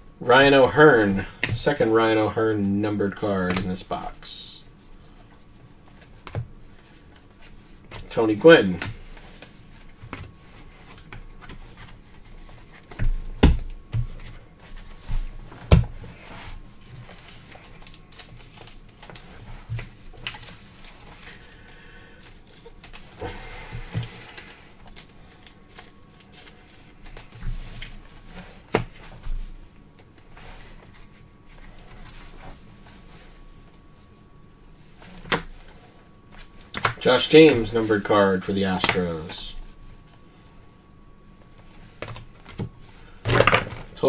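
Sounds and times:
cards rustling: 0:16.1 - 0:23.2, 0:23.8 - 0:29.2.

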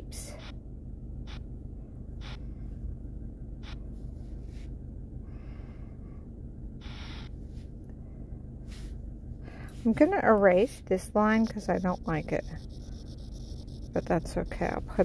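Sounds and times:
low steady hum: 0:00.0 - 0:15.0
person breathing: 0:04.2 - 0:06.4, 0:07.6 - 0:09.9.

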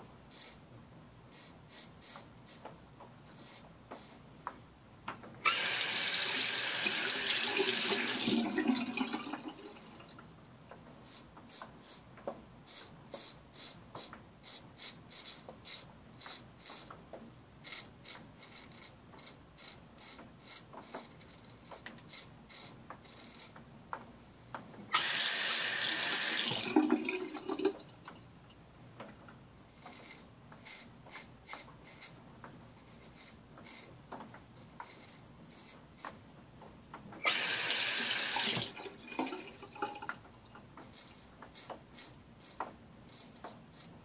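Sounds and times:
water tap running: 0:05.4 - 0:10.0, 0:24.9 - 0:27.8, 0:37.2 - 0:40.2.

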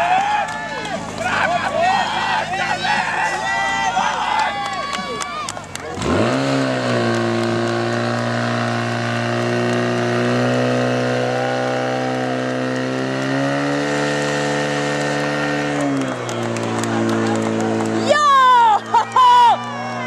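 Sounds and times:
pump engine running at high revs: 0:05.8 - 0:18.1.

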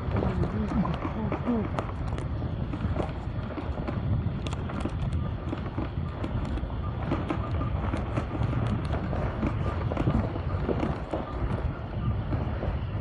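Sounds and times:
wind noise on microphone: 0:00.0 - 0:13.0.

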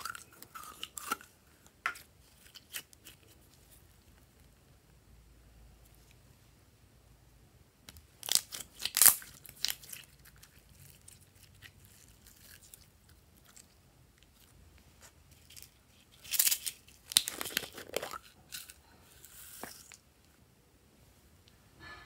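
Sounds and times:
clay crunchy crackles: 0:07.9 - 0:20.1.

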